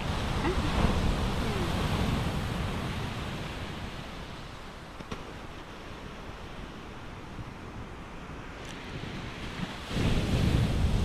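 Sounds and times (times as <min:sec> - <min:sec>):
ocean surf: 0:00.0 - 0:11.0
wind buffeting microphone: 0:06.1 - 0:11.0.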